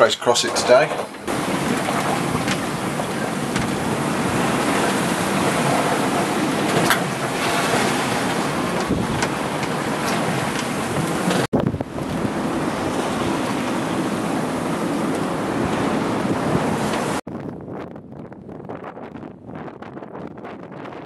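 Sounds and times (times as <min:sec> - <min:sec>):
breaking waves: 0:00.0 - 0:17.2
wind: 0:00.0 - 0:21.0
wind buffeting microphone: 0:00.0 - 0:21.0.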